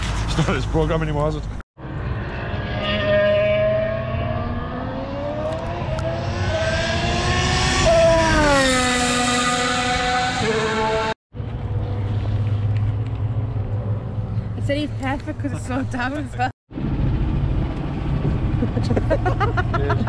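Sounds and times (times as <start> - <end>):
racing car engine passing: 1.8 - 12.7.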